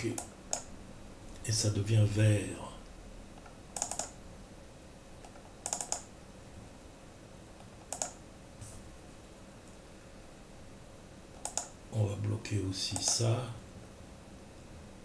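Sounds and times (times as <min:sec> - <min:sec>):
mouse and keyboard clicks: 0:03.4 - 0:04.2, 0:05.2 - 0:06.1, 0:07.6 - 0:08.2, 0:11.4 - 0:11.8, 0:13.0 - 0:13.2.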